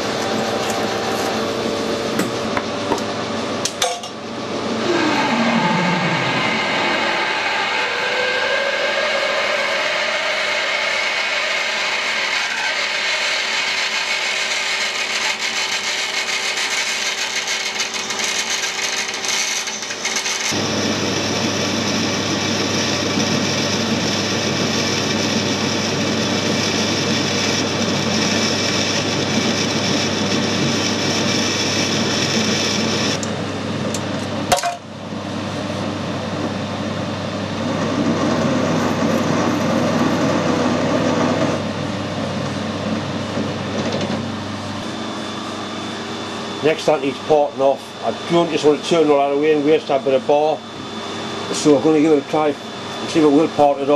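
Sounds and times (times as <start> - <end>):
drill boring through metal: 4.8 - 33.2
metal lathe cutting steel: 4.8 - 33.2
countersink cutting metal: 10.2 - 21.0.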